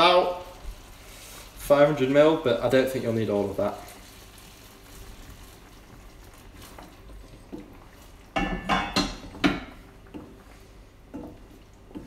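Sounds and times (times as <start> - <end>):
liquid pouring into pan: 3.7 - 12.0
pots and pans clattering: 8.3 - 9.9.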